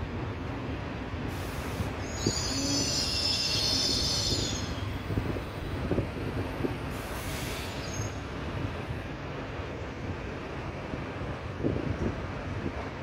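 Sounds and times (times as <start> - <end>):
train wheels squealing on rails: 1.3 - 8.4.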